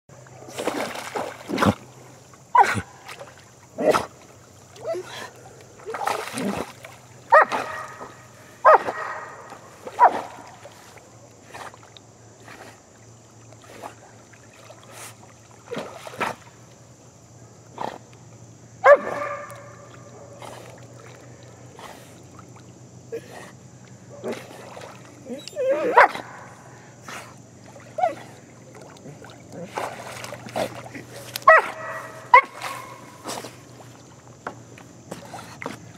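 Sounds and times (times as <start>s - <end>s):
dog barking: 7.3s - 10.4s, 18.8s - 19.6s, 25.7s - 26.4s, 31.4s - 33.0s.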